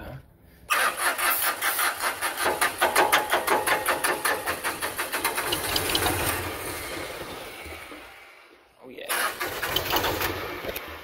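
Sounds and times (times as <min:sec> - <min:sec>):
diesel engine cranking on starter: 0:00.7 - 0:03.0, 0:03.7 - 0:08.1, 0:09.1 - 0:11.0.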